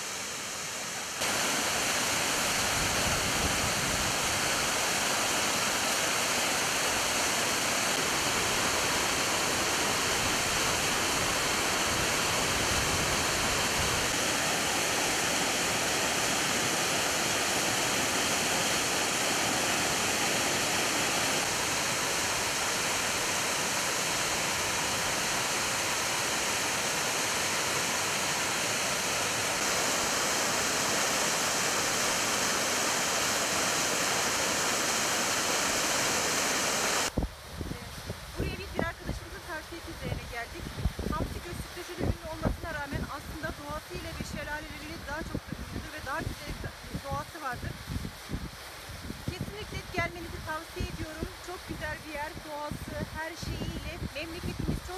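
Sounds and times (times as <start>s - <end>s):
waterfall rushing: 0.0s - 37.2s.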